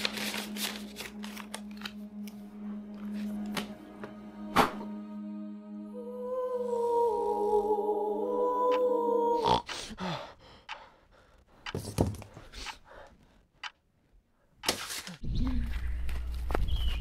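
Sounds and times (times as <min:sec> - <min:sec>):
background music: 0:00.0 - 0:09.4.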